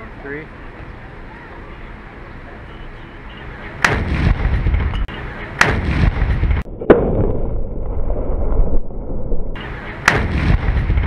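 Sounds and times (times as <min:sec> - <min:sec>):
cannon bangs: 0:03.8 - 0:07.7, 0:10.0 - 0:11.0.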